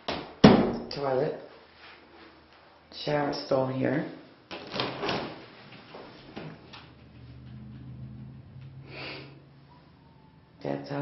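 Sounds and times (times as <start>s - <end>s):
low steady hum: 5.8s - 11.0s.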